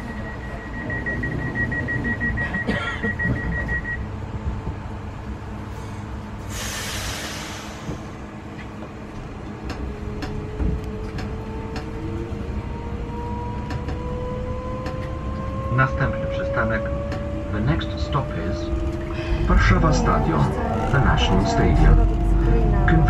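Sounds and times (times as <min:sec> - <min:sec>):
fast-pulsing door warning beep: 0:00.0 - 0:04.0
short hiss of air: 0:06.5 - 0:08.1.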